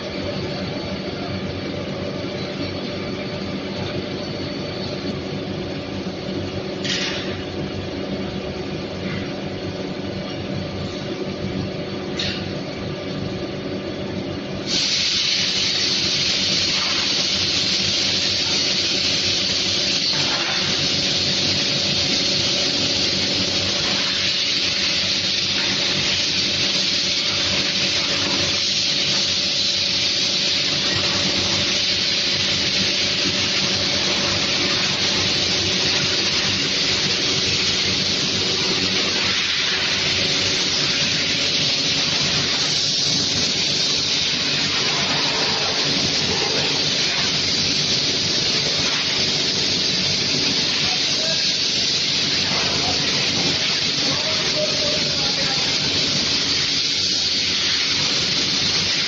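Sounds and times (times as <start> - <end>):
factory machinery humming: 0.0 - 59.0
loud steady hiss: 14.6 - 59.0.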